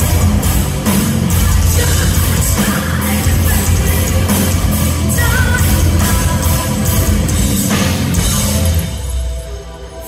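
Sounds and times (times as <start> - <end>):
live heavy metal band: 0.0 - 10.0
woman singing: 1.4 - 4.5, 5.1 - 7.2.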